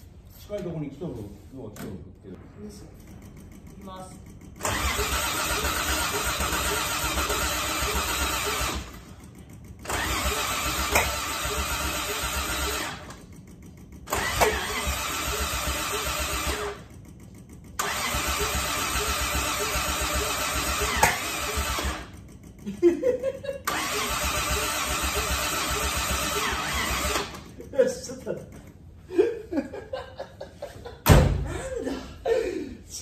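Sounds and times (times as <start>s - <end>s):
starter cranking engine: 3.0s - 28.9s.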